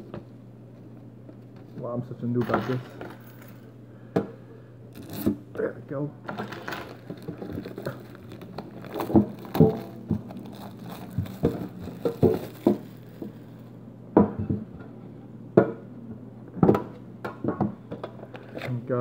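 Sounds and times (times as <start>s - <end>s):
plastic wrap crinkling and tearing: 5.0s - 5.3s, 6.3s - 13.7s.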